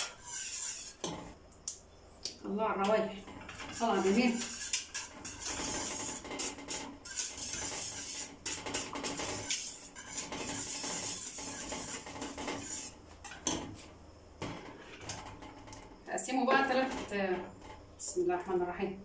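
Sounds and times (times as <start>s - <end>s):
whisk scraping metal pot: 0.0s - 1.4s, 3.2s - 13.8s.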